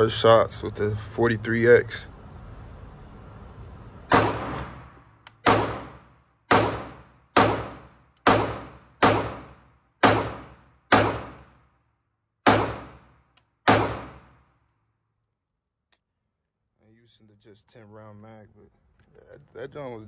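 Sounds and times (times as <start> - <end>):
pistol shots echoing indoors: 4.1 - 11.8, 12.4 - 14.6.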